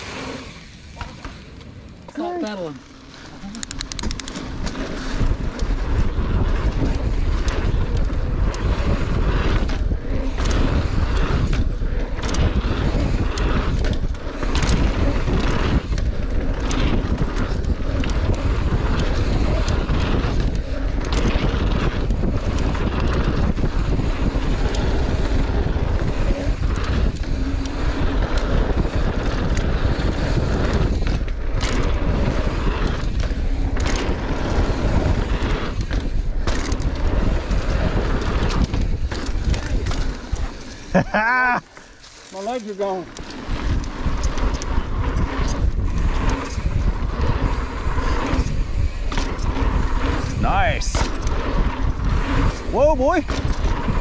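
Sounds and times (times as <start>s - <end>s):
bike tyres rumbling on dirt: 0.0s - 54.0s
wind buffeting microphone: 3.5s - 42.0s, 42.7s - 54.0s.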